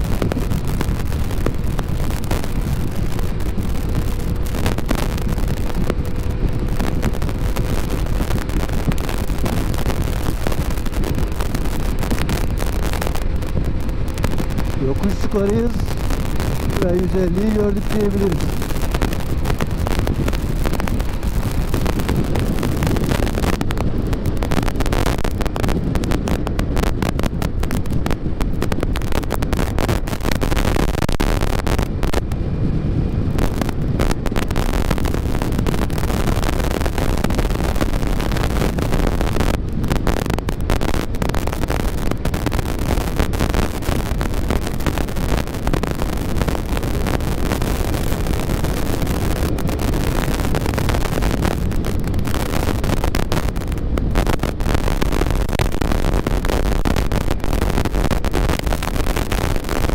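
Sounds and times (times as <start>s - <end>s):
road noise: 0.0s - 59.9s
wind noise on microphone: 0.0s - 59.9s
scooter engine: 0.2s - 14.8s.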